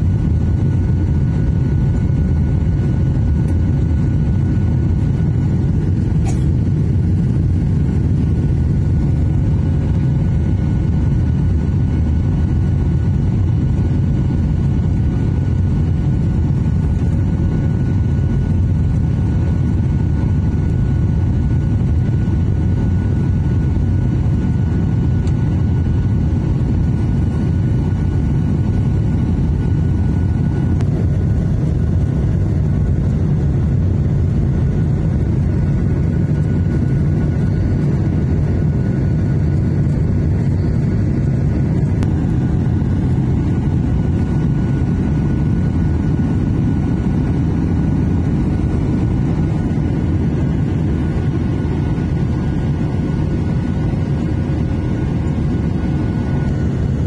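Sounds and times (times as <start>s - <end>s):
air rushing through cabin: 0.0s - 57.0s
jet engines low rumble: 0.0s - 57.0s.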